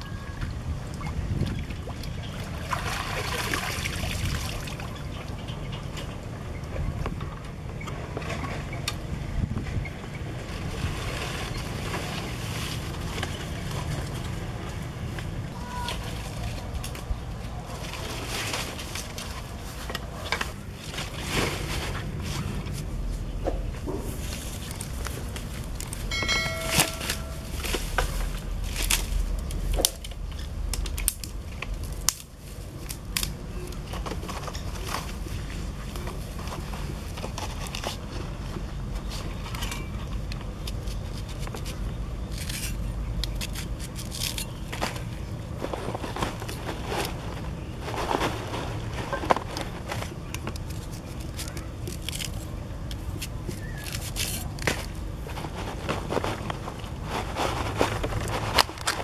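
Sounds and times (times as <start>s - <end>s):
low steady rumble: 0.0s - 59.0s
leaf and basket rustling: 10.4s - 14.5s, 15.5s - 59.0s
cleaver scraping onion: 40.7s - 44.7s, 53.1s - 54.8s.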